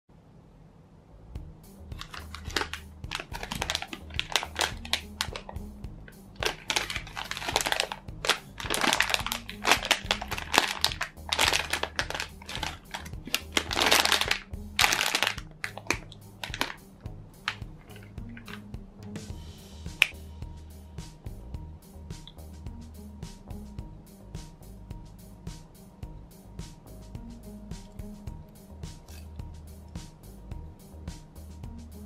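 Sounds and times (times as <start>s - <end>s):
background music: 1.3s - 32.0s
plastic packaging crinkling: 2.0s - 5.6s, 6.4s - 16.8s, 17.5s - 18.6s.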